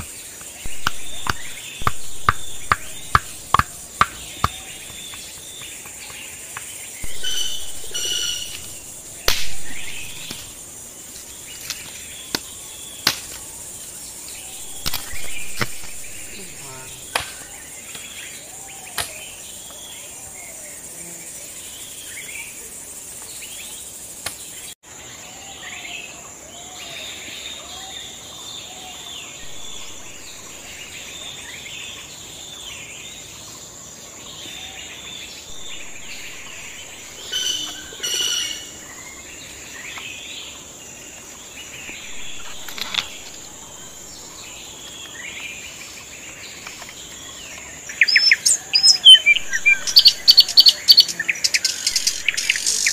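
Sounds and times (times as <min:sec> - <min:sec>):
birds chirping and calling: 0:00.0 - 0:24.8, 0:25.6 - 0:33.5, 0:34.2 - 0:52.9
sharp knocks: 0:00.7 - 0:10.5
high-pitched insect drone: 0:00.7 - 0:11.2, 0:14.0 - 0:17.8, 0:35.5 - 0:39.7, 0:48.0 - 0:52.9.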